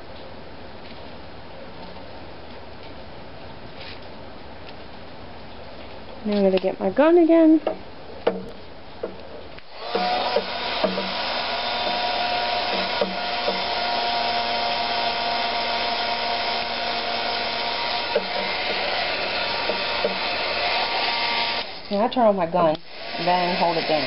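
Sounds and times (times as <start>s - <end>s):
heat gun blowing: 9.6s - 22.0s, 22.7s - 24.0s.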